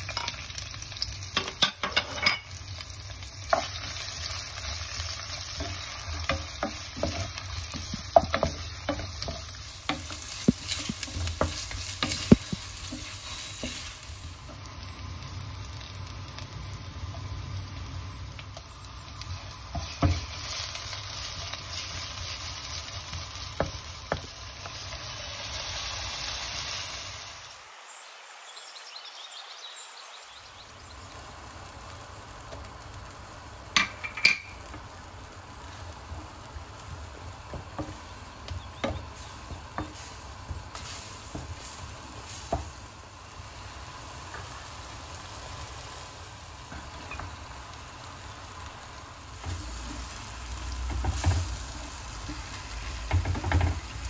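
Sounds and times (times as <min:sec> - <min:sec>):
food sizzling in hot oil: 0:00.0 - 0:27.7, 0:30.5 - 0:54.0
wooden spatula stirring: 0:03.5 - 0:14.6, 0:19.4 - 0:24.9, 0:37.1 - 0:42.8.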